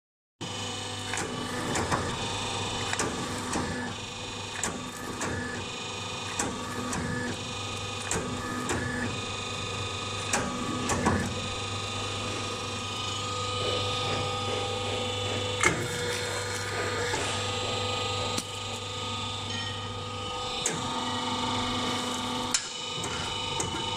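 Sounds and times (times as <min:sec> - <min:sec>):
machine humming: 0:00.4 - 0:23.9
whirring cutter: 0:00.4 - 0:23.9.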